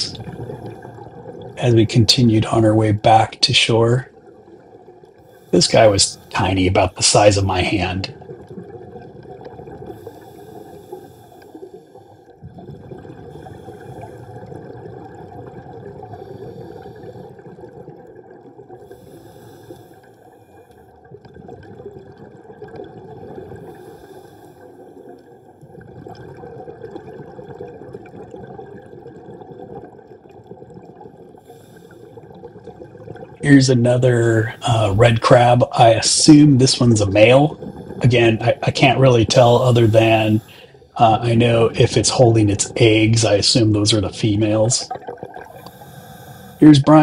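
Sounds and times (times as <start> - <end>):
underwater water rush: 0.0 - 47.0.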